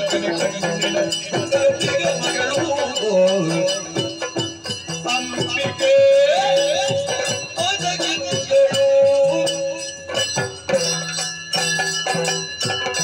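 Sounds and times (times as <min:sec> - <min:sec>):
person singing ornamented melody: 0:00.0 - 0:04.3
small metal cymbals ringing: 0:00.0 - 0:13.0.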